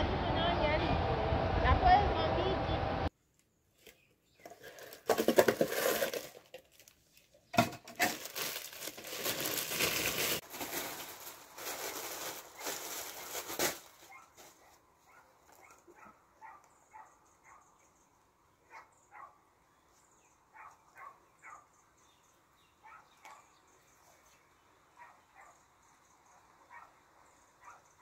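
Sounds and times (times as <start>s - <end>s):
plastic bag crinkling: 4.5s - 14.8s.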